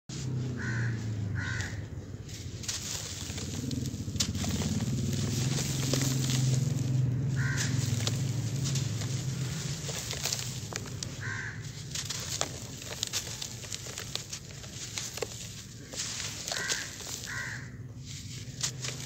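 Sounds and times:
crunchy crackles: 0.6 - 19.0.

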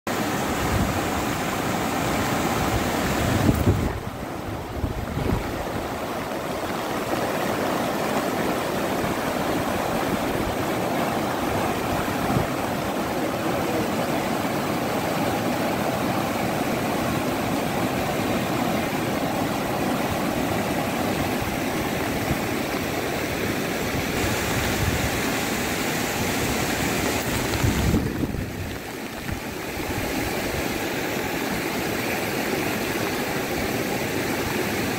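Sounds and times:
floodwater rushing: 0.1 - 34.9
wind buffeting microphone: 0.5 - 13.2, 16.0 - 30.8.

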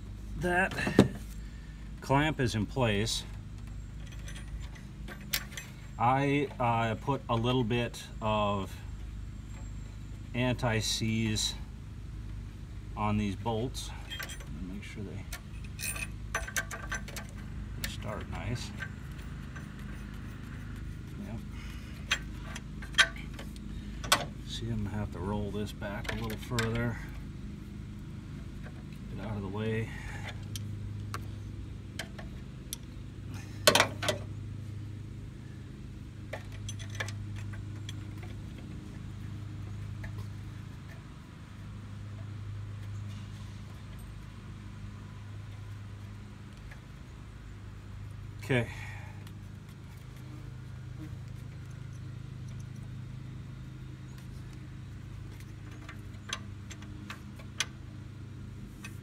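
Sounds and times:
steady low hum: 0.0 - 59.0
light metallic clicks of bolts: 3.3 - 6.6, 13.8 - 20.9, 21.9 - 24.6, 25.7 - 27.2, 33.6 - 34.3, 36.3 - 41.2, 51.0 - 53.0, 53.9 - 57.9.

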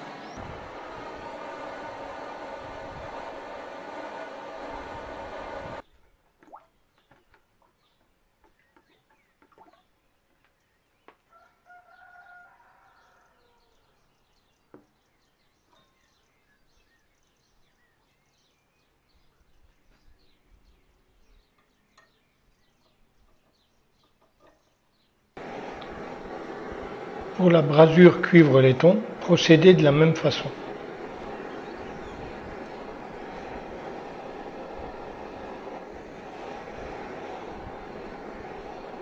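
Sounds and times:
longer bird call: 25.4 - 39.0.

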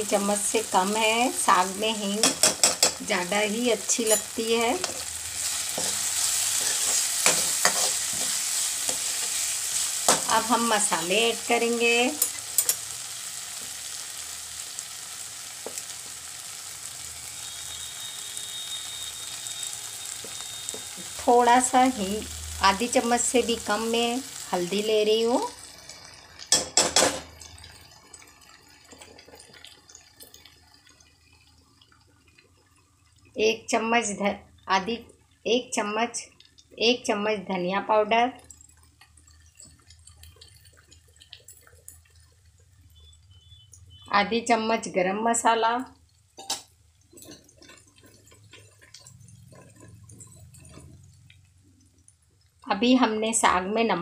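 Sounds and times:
faint sizzle: 0.0 - 54.0
masala frying in pan: 0.0 - 54.0
spoon clinking on metal pan: 2.2 - 3.0, 4.0 - 5.0, 46.4 - 47.5
spoon scraping metal pan: 4.0 - 10.5.

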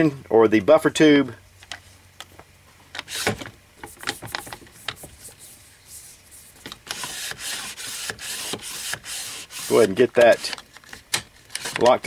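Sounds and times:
rifle stock scraping: 9.6 - 12.0
rifle stock clicks and rubbing: 9.8 - 12.0.

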